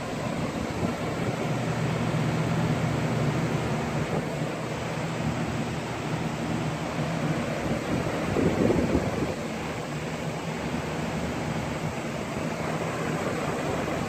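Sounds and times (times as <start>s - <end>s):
electric fans rushing air: 0.0s - 14.0s
fan motor hum: 0.0s - 14.0s.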